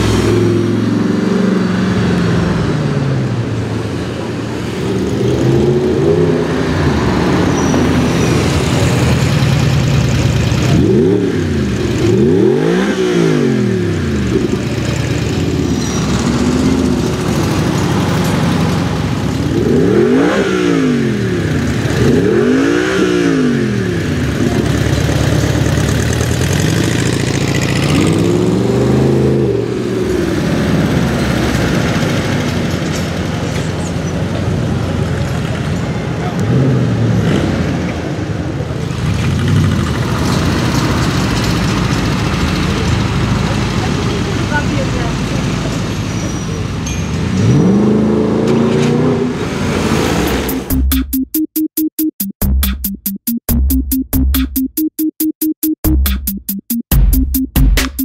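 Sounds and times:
car engine revving: 0.0s - 33.5s, 47.2s - 51.1s.

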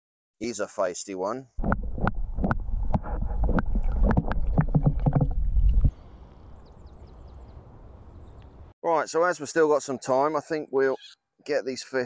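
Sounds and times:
muffled underwater water sloshing: 1.6s - 6.3s.

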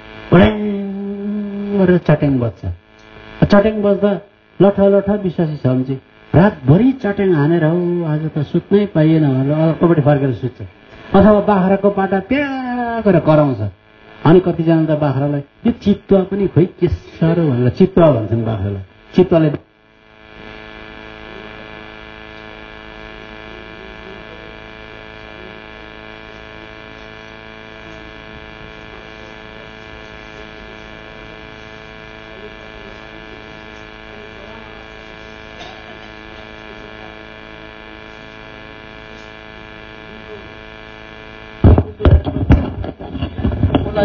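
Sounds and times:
electrical mains hum: 0.0s - 44.0s
loud irregular sounds: 41.5s - 44.0s.

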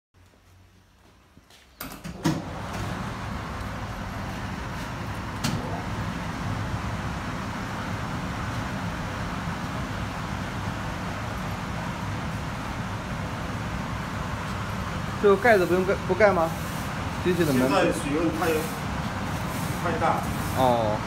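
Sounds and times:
dryer rushing noise: 1.8s - 21.0s.

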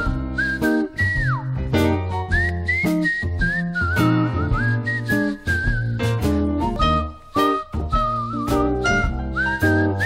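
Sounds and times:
instrumental accompaniment with beat: 0.0s - 10.0s
whistled melody: 0.0s - 10.0s.

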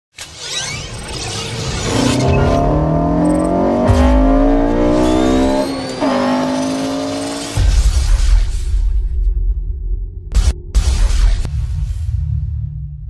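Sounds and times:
car engine accelerating: 1.4s - 7.8s.

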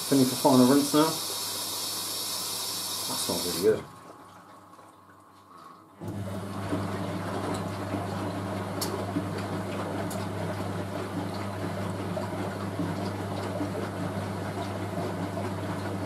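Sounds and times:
washing machine motor hum: 0.0s - 16.0s
water sloshing in drum: 3.8s - 16.0s.

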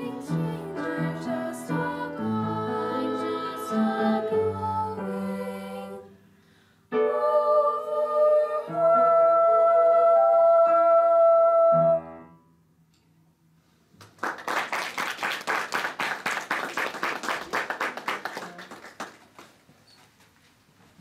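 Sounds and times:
girls singing with piano: 0.0s - 6.3s, 6.9s - 12.2s
audience clapping: 14.0s - 19.7s.

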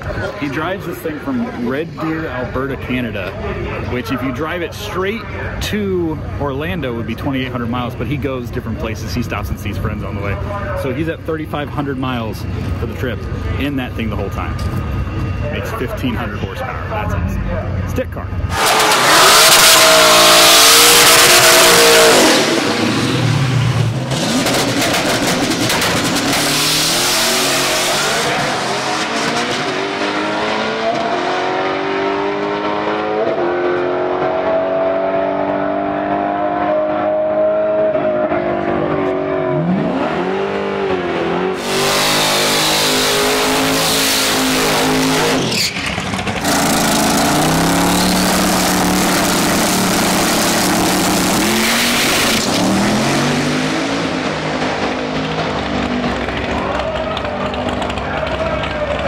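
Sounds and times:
race car engine close by: 0.0s - 59.0s
drag car engine accelerating: 17.7s - 59.0s.

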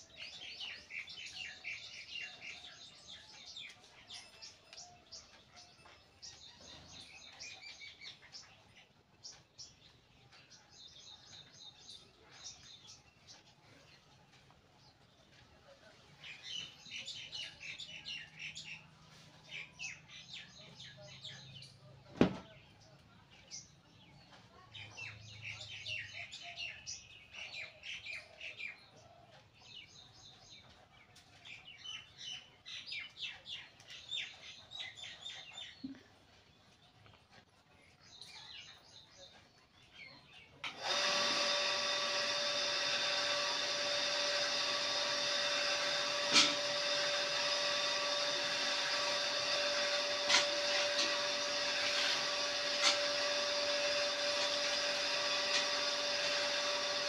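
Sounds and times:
birds chirping: 0.0s - 57.0s
electric machine hum: 40.6s - 57.0s.

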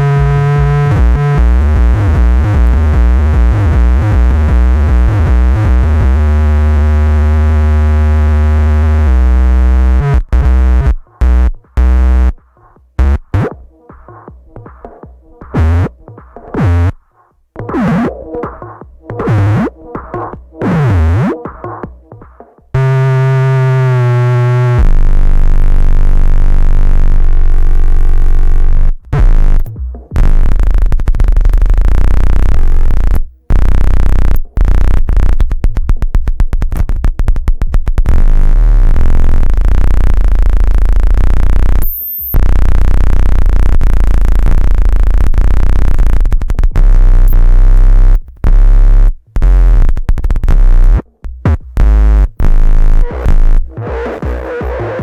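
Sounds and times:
electronic feedback drone: 46.8s - 55.0s.

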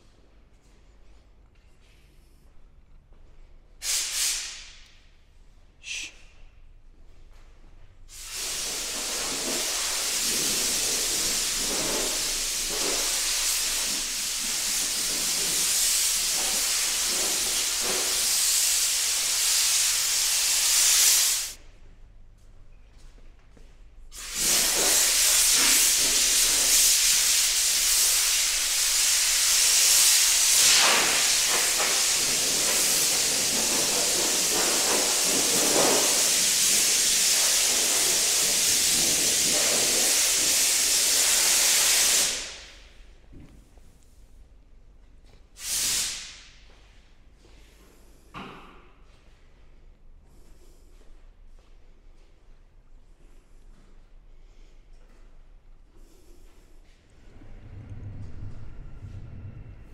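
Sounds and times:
spray gun hissing: 3.8s - 4.7s, 8.1s - 21.6s, 24.1s - 42.9s, 45.6s - 46.4s.

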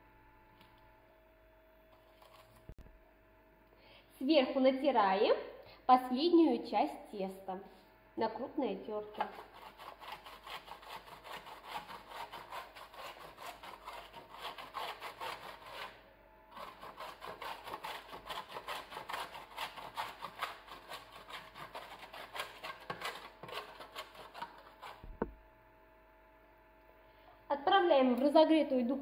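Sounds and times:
dough grated on metal grater: 9.1s - 25.1s
single knock: 25.0s - 25.4s.

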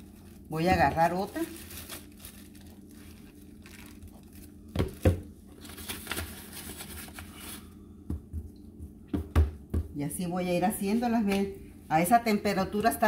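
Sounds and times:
steady low hum: 0.0s - 13.0s
sharp knocks on counter: 9.1s - 9.9s.

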